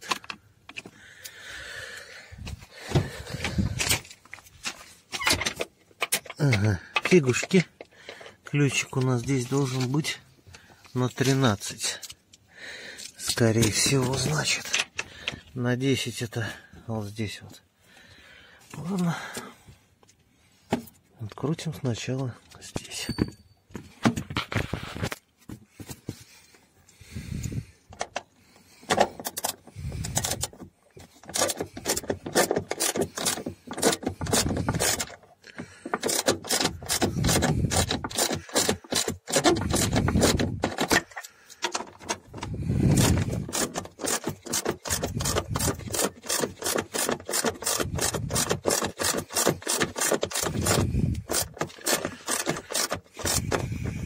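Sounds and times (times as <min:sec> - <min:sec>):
socket ratchet clicking: 0:35.9 - 0:41.7, 0:43.0 - 0:53.9.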